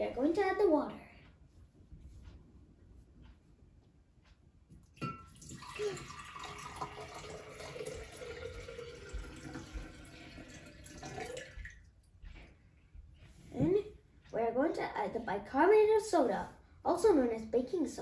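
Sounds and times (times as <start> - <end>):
water pouring into glass: 5.0 - 11.8.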